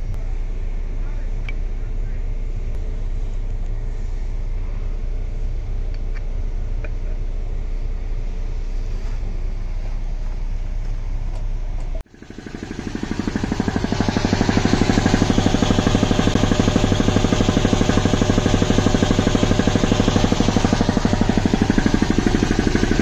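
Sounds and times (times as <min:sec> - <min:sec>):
steady low hum: 0:00.0 - 0:23.0
air compressor pulsing: 0:12.1 - 0:23.0.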